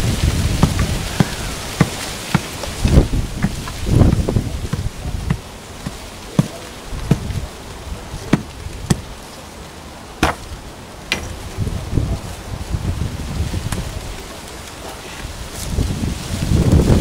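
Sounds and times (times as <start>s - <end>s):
shovel thudding into soil: 10.2s - 11.4s.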